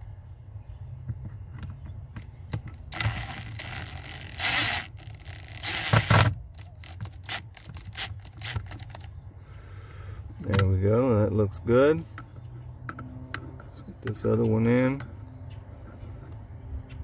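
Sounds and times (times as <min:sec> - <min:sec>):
power driver whining: 0:02.7 - 0:09.1
short power driver blips: 0:02.9 - 0:09.1.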